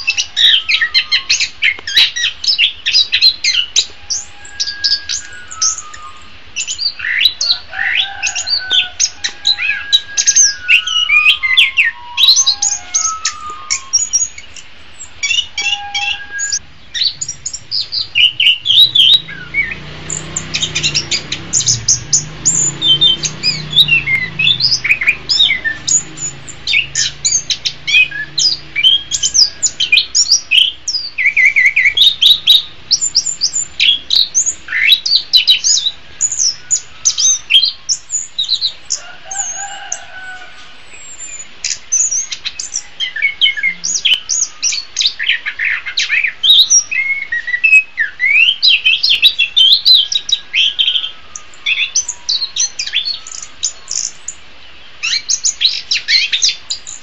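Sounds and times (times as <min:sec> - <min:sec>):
thrush singing: 0:00.0 - 0:41.6.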